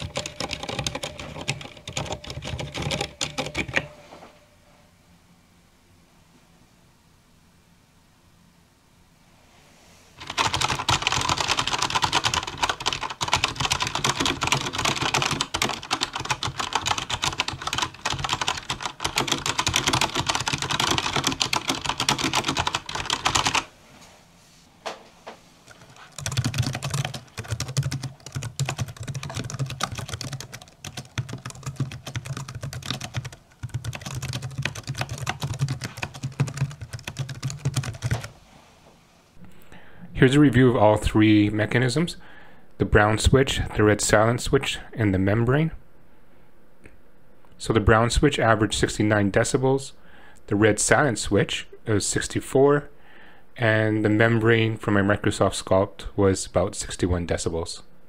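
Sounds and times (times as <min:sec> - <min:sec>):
mechanical keyboard typing: 0:00.0 - 0:03.9, 0:10.2 - 0:23.7, 0:25.7 - 0:38.3
membrane keyboard typing: 0:00.0 - 0:04.0, 0:10.2 - 0:23.7, 0:25.6 - 0:38.3.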